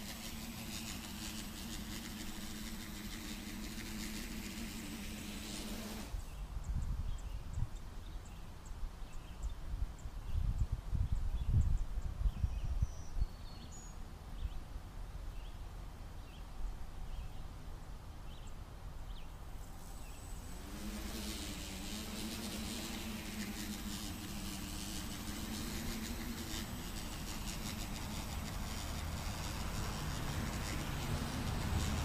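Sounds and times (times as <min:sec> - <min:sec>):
drone motors buzzing: 0:00.0 - 0:06.3, 0:19.6 - 0:32.0.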